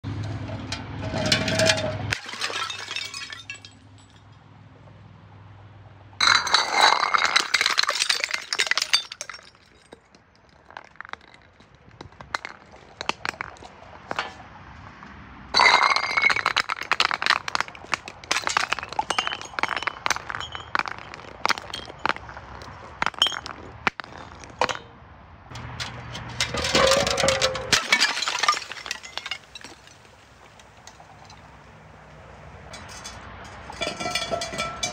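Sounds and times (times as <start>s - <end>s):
glass bottles shattering: 1.1s - 4.3s, 6.2s - 14.3s, 15.6s - 24.9s, 25.8s - 31.5s, 32.7s - 34.9s
glass clinking and tinkling: 18.3s - 24.8s, 32.7s - 34.9s.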